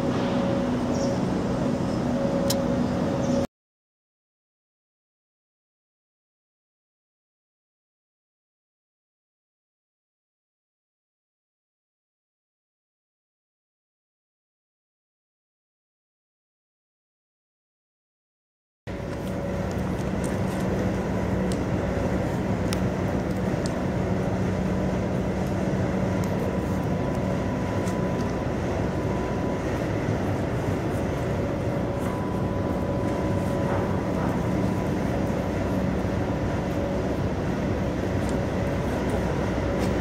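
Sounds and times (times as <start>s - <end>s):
machinery rumbling with whine: 0.0s - 3.5s, 18.9s - 40.0s.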